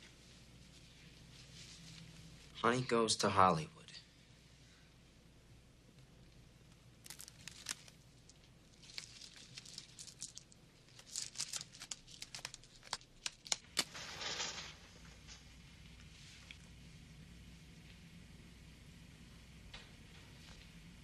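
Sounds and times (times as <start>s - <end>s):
crinkles and clicks of handling: 5.9s - 16.7s
match struck and flaring: 11.6s - 15.0s.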